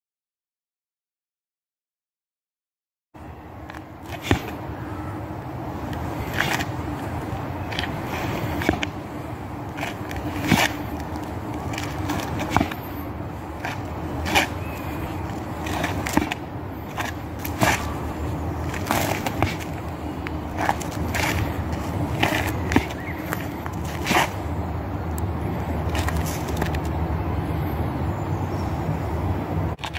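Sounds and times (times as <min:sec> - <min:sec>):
steady background hum: 0:03.2 - 0:29.9
shoes stamping on asphalt: 0:03.6 - 0:04.7, 0:05.8 - 0:26.9.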